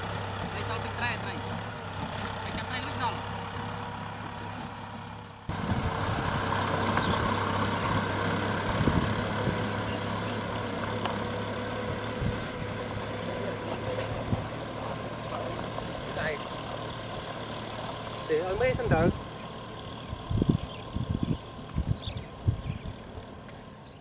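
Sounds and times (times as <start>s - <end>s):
tractor engine running: 0.0s - 24.0s.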